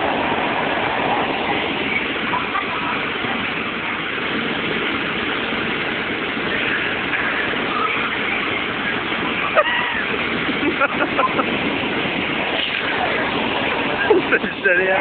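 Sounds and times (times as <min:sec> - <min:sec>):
steady rushing noise: 0:00.0 - 0:15.0
faint children's voices: 0:01.3 - 0:04.3.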